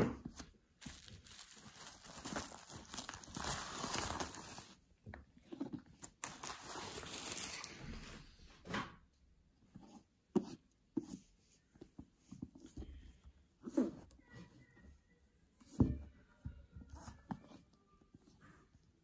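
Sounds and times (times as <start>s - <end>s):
bubble wrap crinkling: 0.4s - 5.0s, 5.8s - 8.1s.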